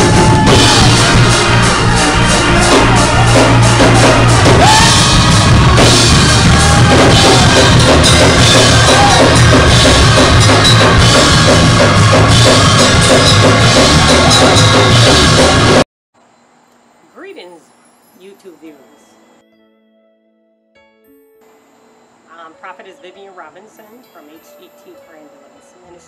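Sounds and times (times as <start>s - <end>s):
drum kit: 0.0s - 15.8s
live church praise music: 0.0s - 15.8s.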